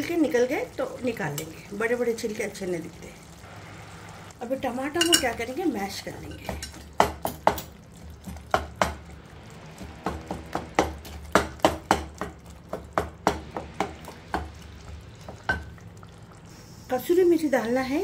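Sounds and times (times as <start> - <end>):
spatula knocking on pot: 6.4 - 7.7, 10.0 - 14.6.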